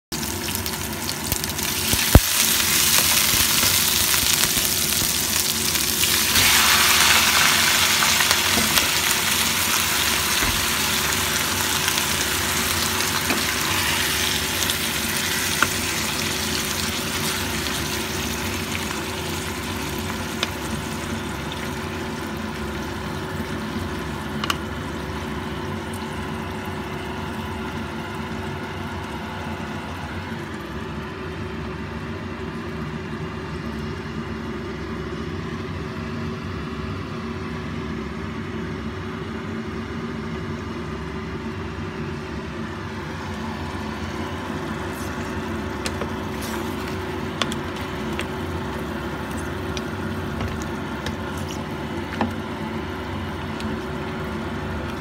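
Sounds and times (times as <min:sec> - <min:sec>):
food sizzling in hot oil: 0:00.2 - 0:26.4, 0:43.2 - 0:55.0.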